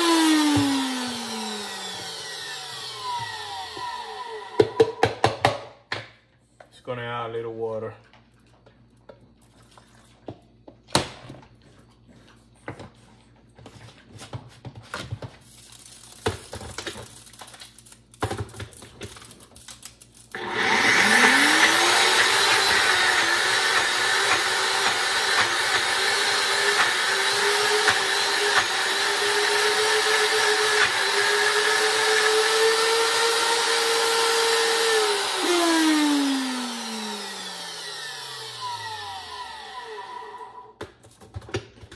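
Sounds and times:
blender motor whining: 0.0 - 5.0, 20.3 - 40.8.

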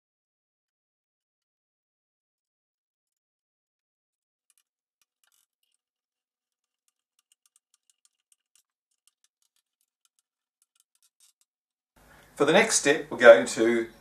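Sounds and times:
faint steady hum: 12.0 - 14.0.

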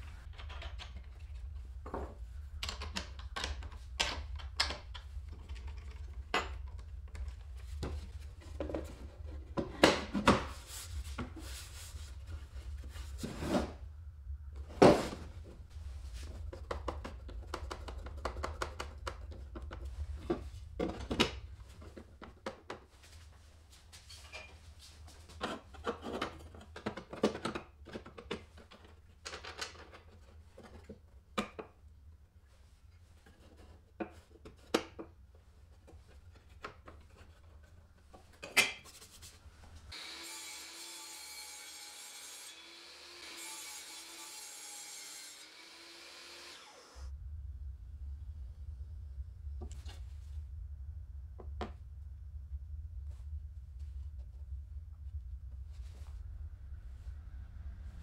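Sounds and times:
clicks and knocks of handling tools: 0.2 - 8.0.

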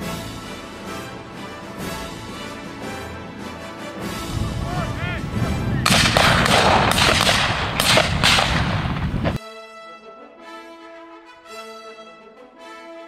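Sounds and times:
background music: 0.0 - 13.0
loud rumbling noise: 4.3 - 9.4
sharp cracks: 5.8 - 9.4.

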